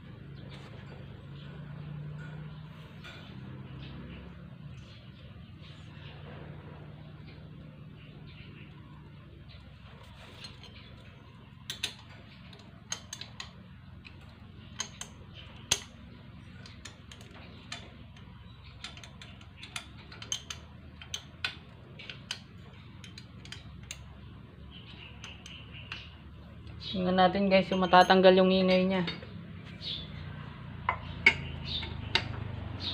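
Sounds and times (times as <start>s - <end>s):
metal parts clicking: 11.6s - 24.2s.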